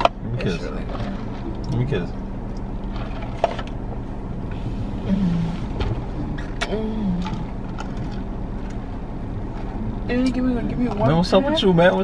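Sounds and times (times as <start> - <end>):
idling car hum: 0.0 - 12.0
person moaning mmm: 4.8 - 7.5.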